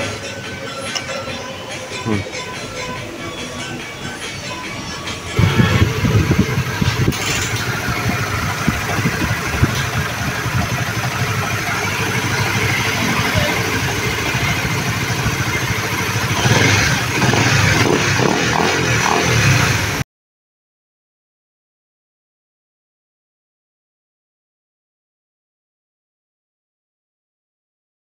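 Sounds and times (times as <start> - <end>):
motorcycle engine idling: 5.3 - 20.0.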